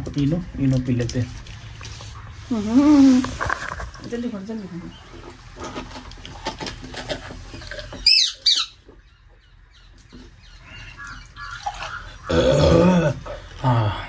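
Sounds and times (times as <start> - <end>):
bird squawking: 7.9 - 8.9, 10.4 - 12.6.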